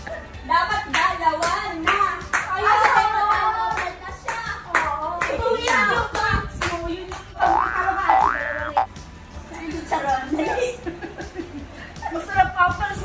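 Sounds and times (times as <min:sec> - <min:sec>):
people clapping in a steady beat: 0:00.9 - 0:07.4.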